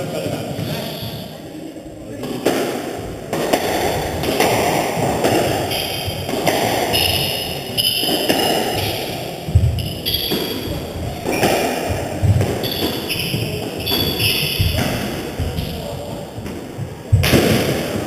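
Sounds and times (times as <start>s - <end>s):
racquets smacking ball: 2.2s - 18.0s
shoes squeaking on wooden floor: 3.8s - 17.4s.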